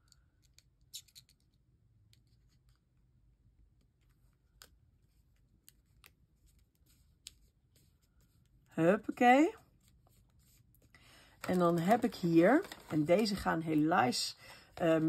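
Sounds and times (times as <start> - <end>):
faint paper rustles: 3.7 - 15.0.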